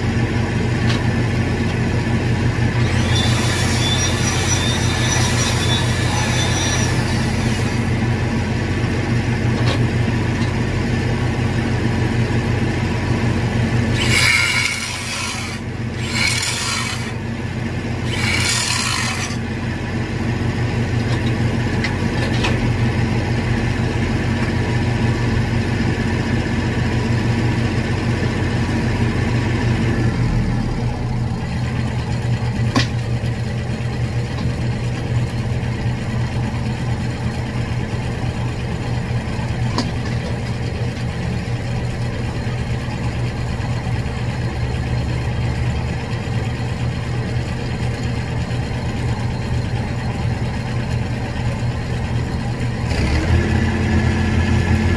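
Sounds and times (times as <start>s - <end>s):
welding machine engine running: 0.0s - 9.4s, 11.0s - 20.1s
angle grinder cutting steel pipe: 2.7s - 8.0s, 13.8s - 17.3s, 17.9s - 19.6s.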